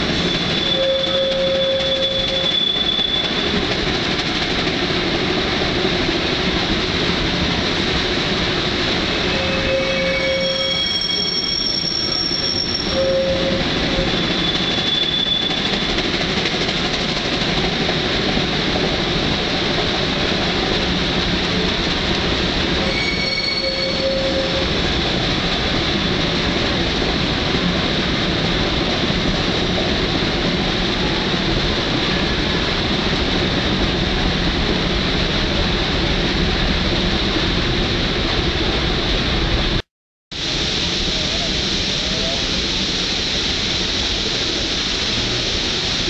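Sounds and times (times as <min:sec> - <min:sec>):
steam locomotive exhaust and running gear: 0:00.0 - 0:39.8, 0:40.4 - 0:46.0
high squeal: 0:00.2 - 0:03.6, 0:09.2 - 0:15.9, 0:22.8 - 0:24.8.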